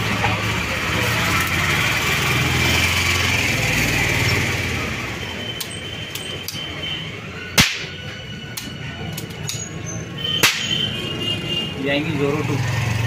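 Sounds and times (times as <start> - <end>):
sharp pistol snap: 7.6 - 8.0, 10.4 - 10.8.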